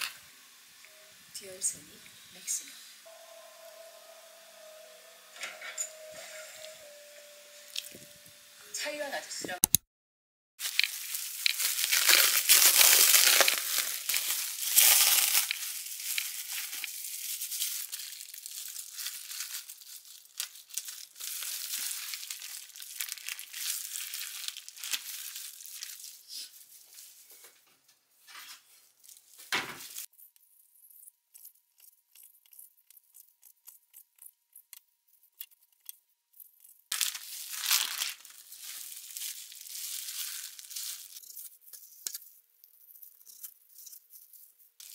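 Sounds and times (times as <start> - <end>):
plastic wrap crinkling and tearing: 10.6 - 27.3, 28.2 - 30.1, 36.5 - 44.9.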